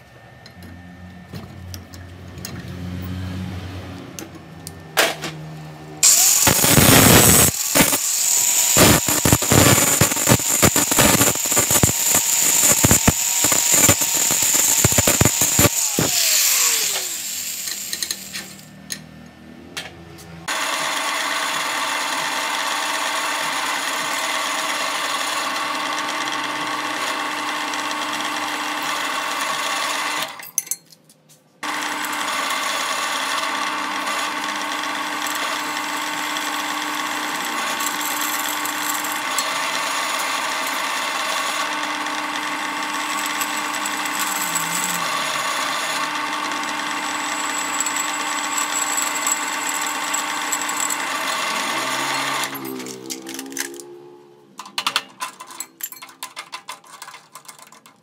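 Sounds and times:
drill press humming and whining: 5.6 - 18.7, 20.5 - 30.4, 31.6 - 53.5.

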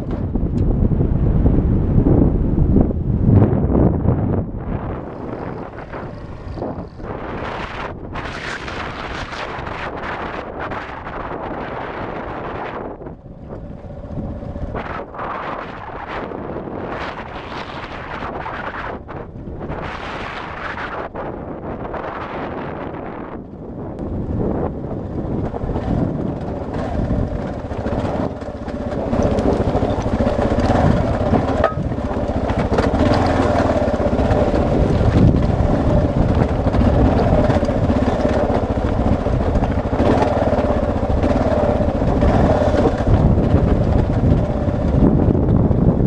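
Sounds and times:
motorcycle engine running: 0.0 - 46.0
wind buffeting microphone: 0.0 - 46.0
knocks from rough ground: 27.8 - 33.6.

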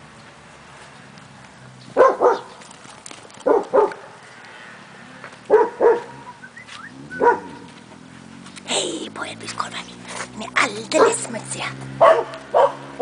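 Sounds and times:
dog barking: 2.0 - 2.5, 3.4 - 4.1, 5.5 - 6.3, 7.2 - 7.7, 12.0 - 13.0.

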